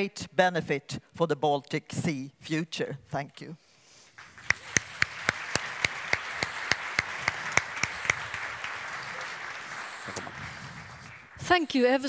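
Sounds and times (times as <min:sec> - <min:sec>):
loud nearby hand clapping: 0:04.2 - 0:11.5
audience applauding: 0:04.2 - 0:11.8.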